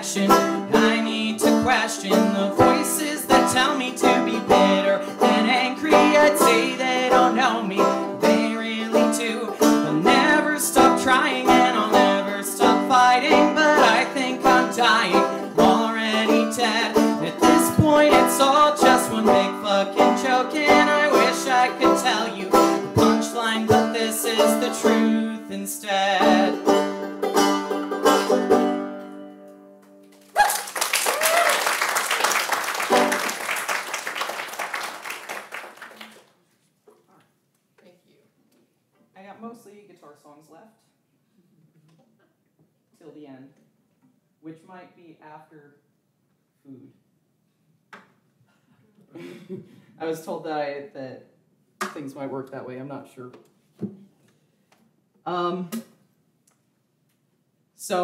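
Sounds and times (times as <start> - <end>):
banjo plucked notes: 0.0 - 29.8, 32.9 - 33.3.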